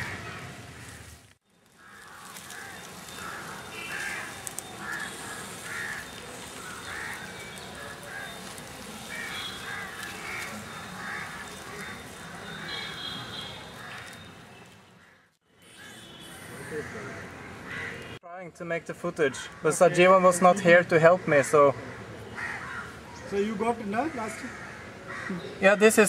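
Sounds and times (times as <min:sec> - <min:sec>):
birds calling: 0:00.0 - 0:18.2, 0:19.1 - 0:26.0.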